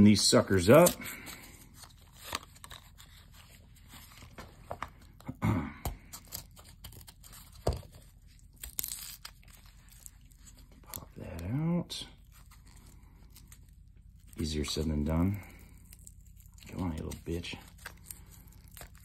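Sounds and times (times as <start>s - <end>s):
blister packaging tearing: 6.1s - 11.1s, 12.2s - 19.0s.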